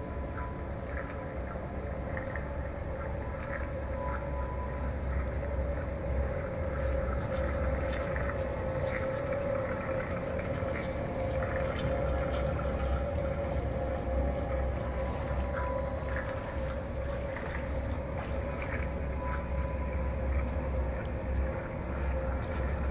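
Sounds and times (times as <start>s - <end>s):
low rumble: 0.0s - 22.9s
mid-pitched hum: 0.0s - 22.9s
water splashing: 5.4s - 22.9s.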